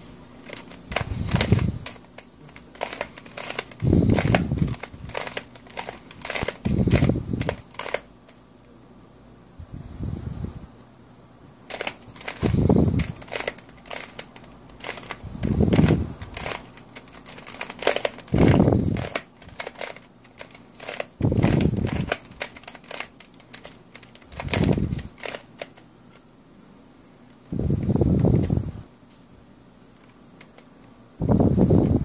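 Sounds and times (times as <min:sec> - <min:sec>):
dull handling sound: 0:00.4 - 0:08.4, 0:11.7 - 0:26.2
plastic puzzle pieces clicking: 0:00.4 - 0:08.4, 0:11.7 - 0:25.8.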